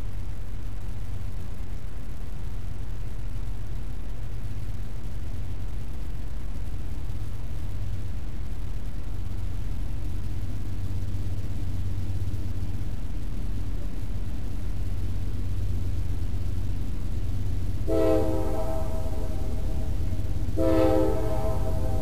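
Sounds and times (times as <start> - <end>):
locomotive rumble: 2.8 - 22.0
train air horn blast: 17.9 - 22.0.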